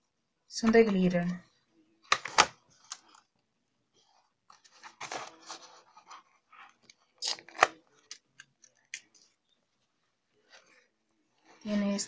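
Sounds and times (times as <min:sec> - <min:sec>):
paper rustling and scraping: 0:04.0 - 0:07.6.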